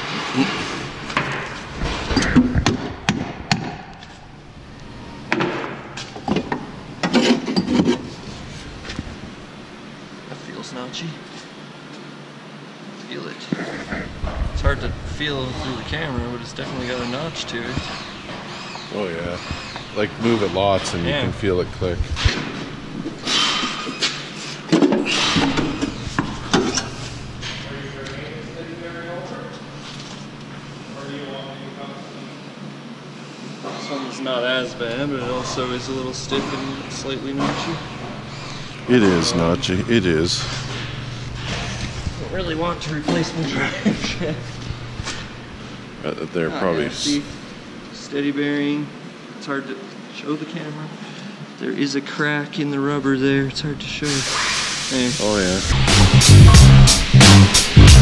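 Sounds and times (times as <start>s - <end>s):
rubbing and shuffling: 7.1s - 9.2s.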